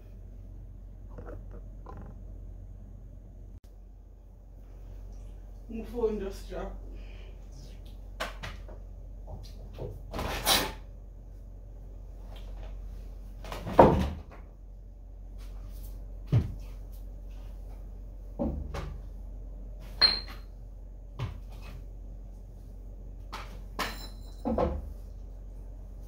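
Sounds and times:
steady low hum: 0.0 - 10.1, 10.8 - 13.6, 14.3 - 26.0
knocks and clatters: 1.1 - 2.3.

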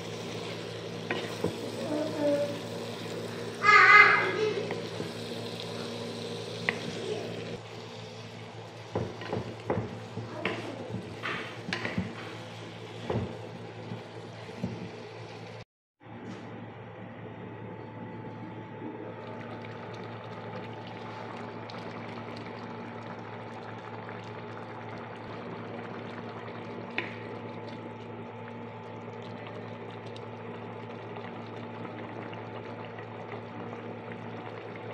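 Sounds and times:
cooker humming: 0.0 - 34.9
curry bubbling in a pot: 19.2 - 34.9.

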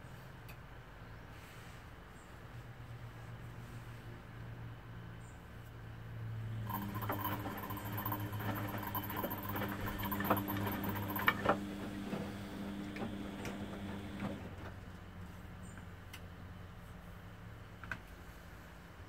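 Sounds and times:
washing machine motor hum: 6.5 - 14.7.

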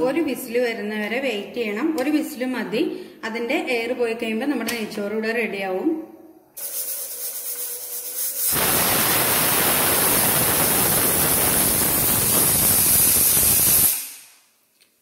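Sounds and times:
pressure cooker steam whistle: 6.6 - 14.4.

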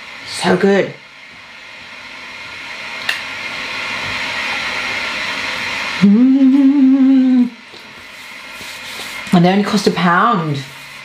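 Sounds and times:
steady hiss: 2.8 - 11.0
woman humming while eating: 6.0 - 7.6.

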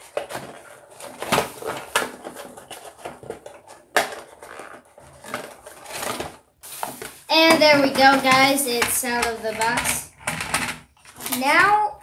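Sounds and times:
packaging rustling: 0.0 - 11.8
packaging cracking and scraping: 0.0 - 11.9.

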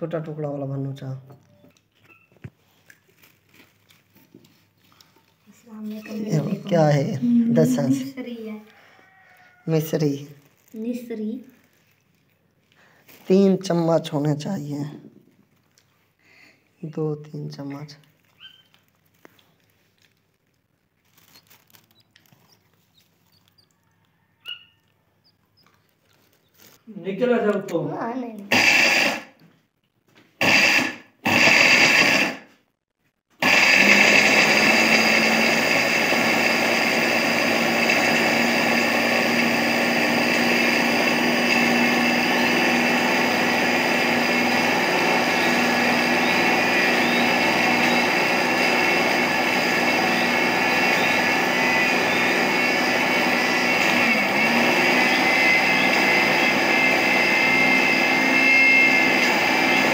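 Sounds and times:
grinder jar grinding: 28.4 - 29.4, 30.3 - 32.5, 33.4 - 59.9.

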